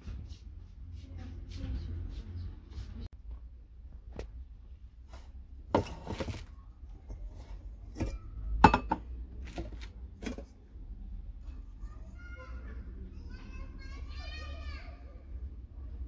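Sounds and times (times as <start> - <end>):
metal coffee pots clinking: 7.9 - 9.1.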